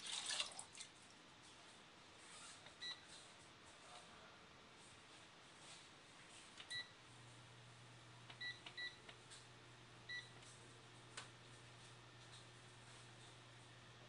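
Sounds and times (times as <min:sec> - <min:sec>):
low steady hum of hob: 0:00.0 - 0:14.0
induction hob beeps: 0:08.4 - 0:09.0, 0:10.1 - 0:10.3.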